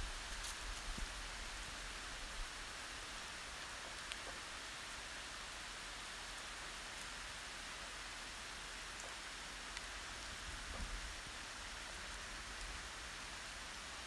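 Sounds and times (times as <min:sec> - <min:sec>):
steady rain hiss: 0:00.0 - 0:14.0
faint raindrop ticks: 0:03.5 - 0:05.0, 0:05.6 - 0:12.8.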